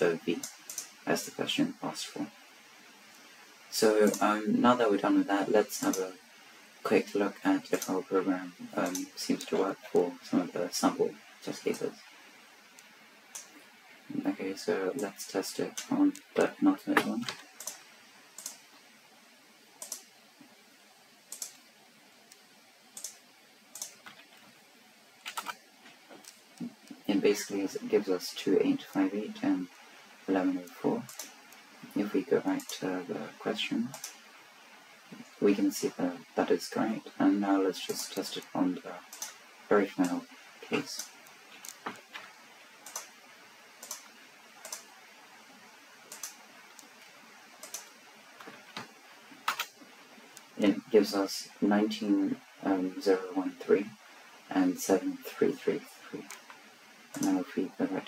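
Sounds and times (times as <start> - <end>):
faint room hiss: 0.0 - 58.0
keyboard and mouse clicks: 0.4 - 1.0, 4.0 - 4.3, 8.8 - 9.6, 15.0 - 17.8, 18.4 - 18.6, 19.8 - 20.1, 21.3 - 21.6, 23.0 - 24.5, 25.2 - 27.0, 31.0 - 31.4, 33.9 - 34.2, 39.1 - 39.4, 40.8 - 43.1, 43.8 - 44.9, 46.1 - 47.0, 47.6 - 49.8, 56.2 - 57.4.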